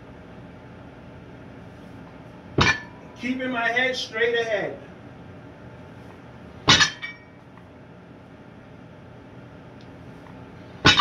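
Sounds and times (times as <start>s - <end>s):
weight plates clanking: 6.7s - 7.3s
metallic ring and rattle: 6.7s - 7.4s.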